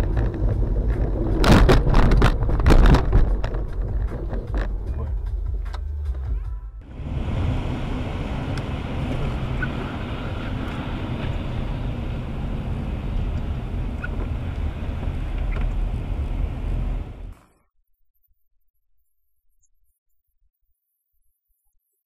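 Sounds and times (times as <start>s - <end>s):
car driving on wet road: 0.0s - 5.4s, 6.8s - 17.4s.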